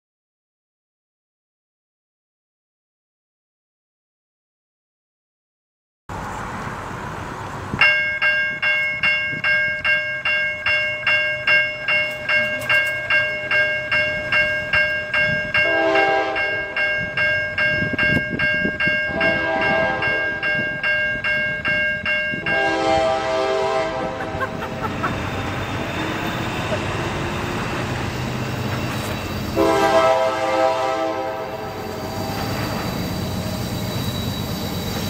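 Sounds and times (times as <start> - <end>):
railroad crossing bell ringing: 7.7 - 35.0
train horn blasts: 15.6 - 16.8, 19.1 - 20.5, 22.4 - 24.7, 29.5 - 32.8.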